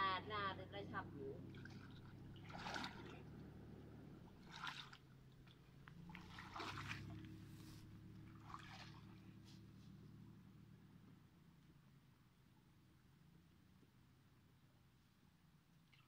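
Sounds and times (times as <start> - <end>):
water splashing and dripping: 1.4 - 3.3, 4.3 - 7.4, 8.2 - 9.3.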